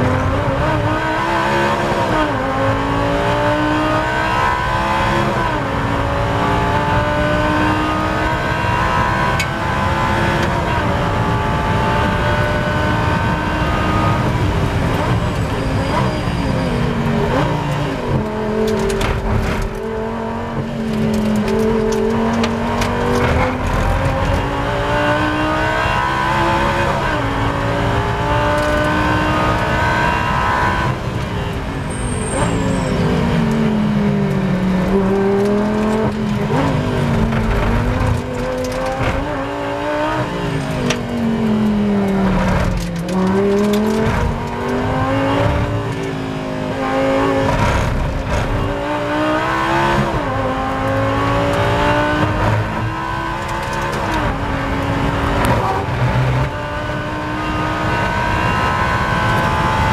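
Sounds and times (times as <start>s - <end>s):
race car engine revving: 0.0s - 59.9s.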